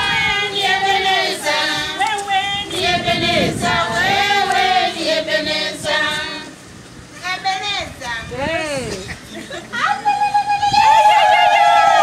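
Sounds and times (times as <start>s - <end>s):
group of voices singing: 0.0s - 6.7s.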